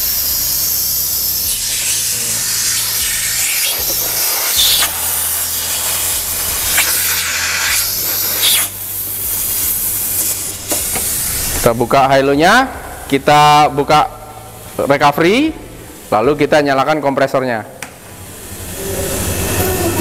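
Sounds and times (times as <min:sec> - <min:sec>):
refrigerant hissing through hoses: 0:00.0 - 0:12.2.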